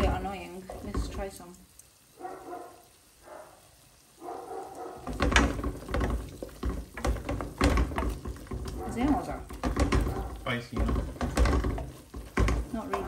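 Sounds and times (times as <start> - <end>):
wooden spoon scraping a pot: 0.0 - 1.5, 5.0 - 13.0
spoon knocking against pot: 5.0 - 13.0.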